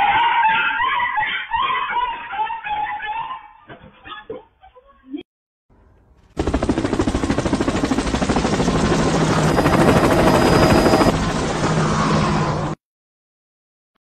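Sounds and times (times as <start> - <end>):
thin high whistle: 9.7 - 11.1.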